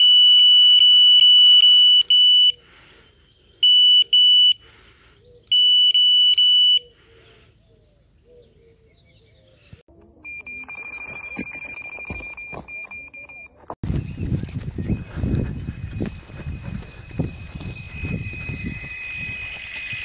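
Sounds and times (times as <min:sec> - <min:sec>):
bite alarm beeping: 0:00.0 - 0:02.6, 0:03.6 - 0:04.6, 0:05.5 - 0:06.9, 0:10.2 - 0:13.7, 0:16.0 - 0:20.0
lower-toned bite alarm: 0:03.6 - 0:04.6, 0:05.5 - 0:06.9, 0:16.0 - 0:20.0.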